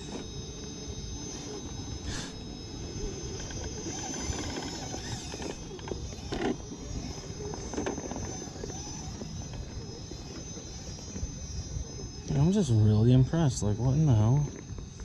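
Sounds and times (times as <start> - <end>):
toy truck electric motor whining: 0.0 - 15.0.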